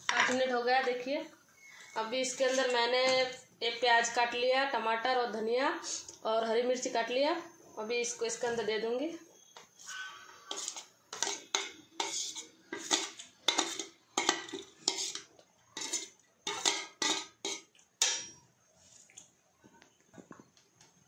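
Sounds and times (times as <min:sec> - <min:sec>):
spoon scraping steel plate: 0:01.6 - 0:02.8, 0:09.7 - 0:18.3.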